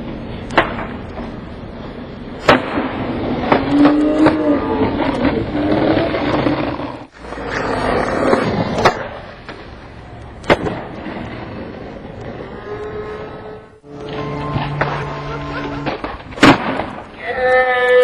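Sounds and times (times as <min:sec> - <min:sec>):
skateboard wheels rolling on pavement: 0:00.0 - 0:18.0.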